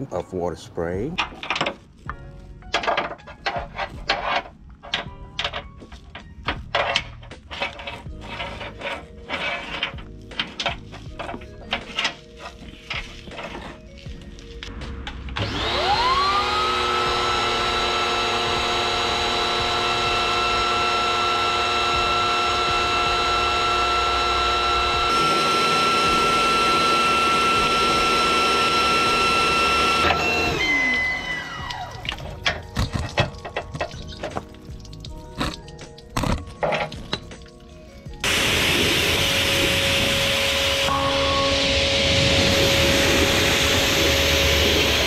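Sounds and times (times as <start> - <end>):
electric pressure washer whining: 15.3 - 32.6, 38.2 - 45.0
water drips: 31.6 - 38.0.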